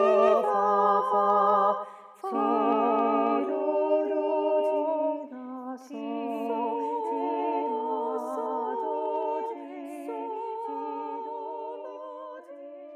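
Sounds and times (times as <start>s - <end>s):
unaccompanied voices singing: 0.0s - 12.9s.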